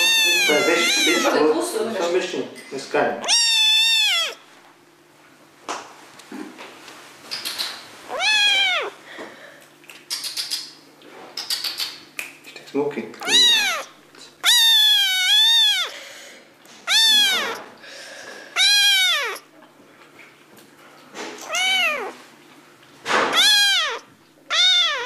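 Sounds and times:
cat meowing loudly: 0.0 - 1.6, 3.2 - 4.4, 8.1 - 9.0, 13.2 - 16.0, 16.8 - 17.7, 18.6 - 19.5, 21.4 - 22.2, 23.3 - 25.0.

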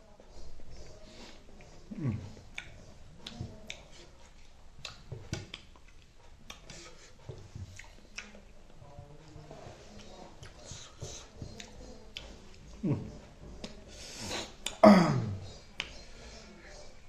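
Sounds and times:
wet lip smacks and licking: 2.5 - 6.9.

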